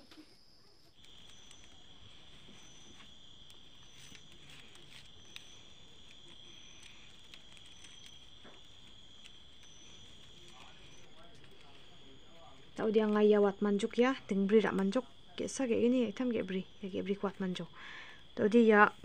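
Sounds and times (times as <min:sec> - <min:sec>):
high-pitched insect trill: 0:00.0 - 0:19.0
plastic strips clicking and rustling: 0:01.0 - 0:13.3.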